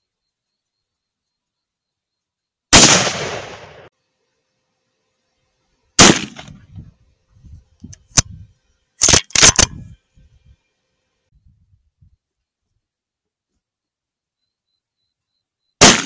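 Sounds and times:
rifle shots: 2.7 - 3.9, 6.0 - 6.6, 15.8 - 16.0.

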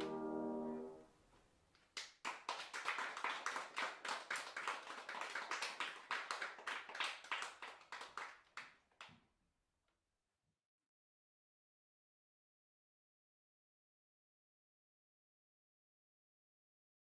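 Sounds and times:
people clapping: 2.0 - 9.2.

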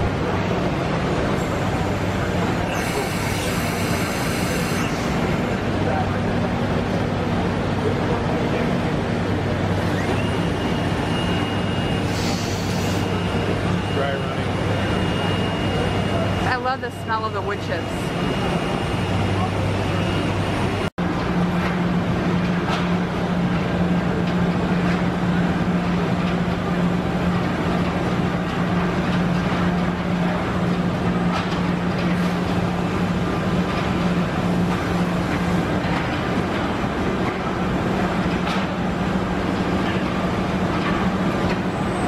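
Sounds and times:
exhibition hall noise: 0.0 - 20.9
woodworking machinery humming: 0.2 - 20.9.

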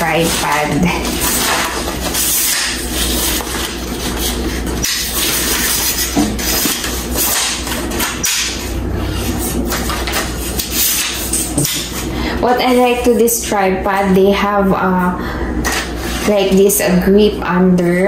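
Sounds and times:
tripod rustling and scraping: 0.0 - 13.3.

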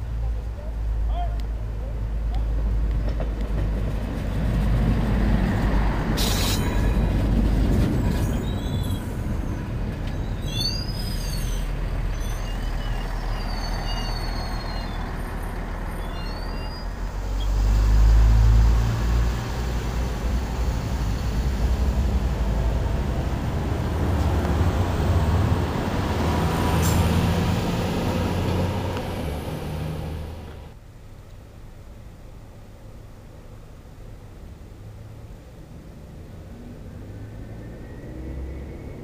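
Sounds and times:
train rumbling past: 2.0 - 30.8.

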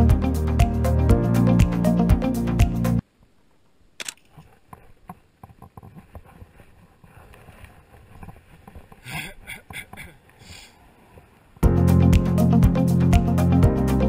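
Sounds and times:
background music with beat: 0.0 - 3.0, 11.6 - 14.0
phone camera click: 4.0 - 4.5.

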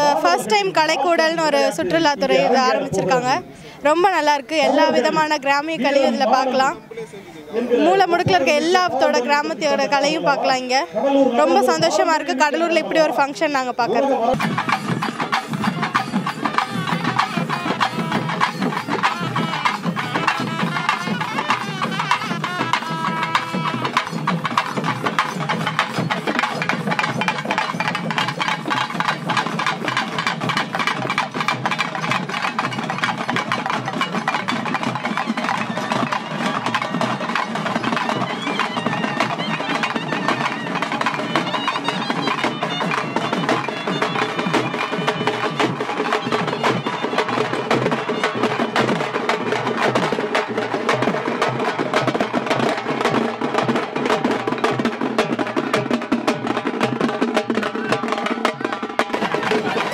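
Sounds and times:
folk drum ensemble beating: 0.0 - 59.9
reed wind instrument melody: 14.4 - 50.3.

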